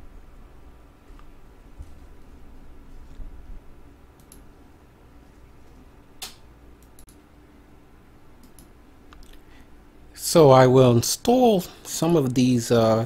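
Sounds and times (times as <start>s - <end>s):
faint steady hum: 0.0s - 13.0s
computer mouse clicks: 4.2s - 4.5s, 8.4s - 9.4s.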